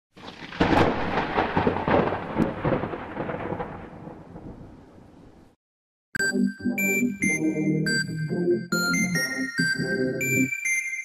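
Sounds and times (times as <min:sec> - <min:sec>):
crackling thunder-like rumble: 0:00.2 - 0:05.6
electronic music: 0:06.2 - 0:11.0.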